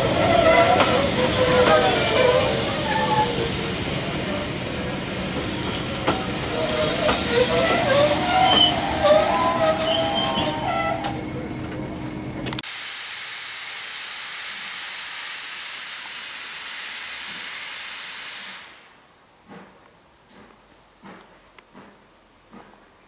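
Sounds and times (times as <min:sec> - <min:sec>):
steam locomotive hissing steam: 0:00.0 - 0:11.8, 0:12.6 - 0:18.9
wheels squealing: 0:00.0 - 0:12.0
railway coaches rolling past: 0:00.0 - 0:12.6.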